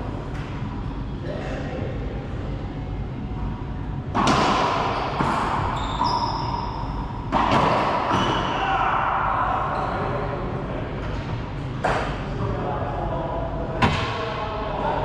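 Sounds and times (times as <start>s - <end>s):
racquet striking ball: 4.1s - 8.6s
sneaker squeaks on hardwood floor: 5.6s - 7.0s, 8.1s - 8.5s.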